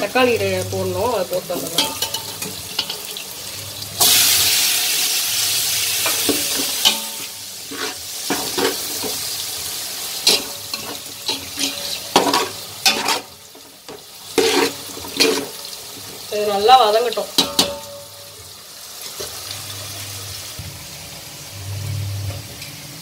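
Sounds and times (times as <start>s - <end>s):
tomatoes sizzling in hot oil: 0.0s - 23.0s
metal ladle scraping a pot: 6.0s - 9.4s, 10.2s - 15.8s.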